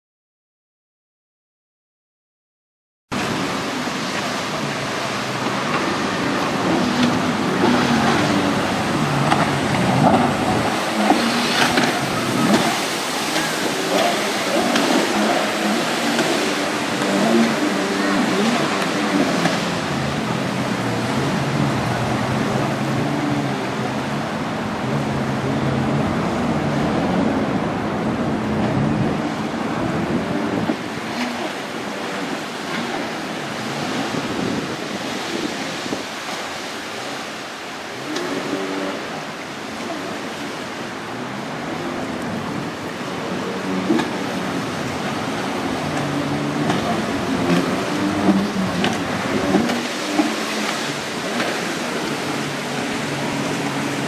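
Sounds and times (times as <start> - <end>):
wind on microphone: 3.1 - 37.2
jet ski engine running: 3.1 - 54.0
waves rushing: 3.1 - 54.0.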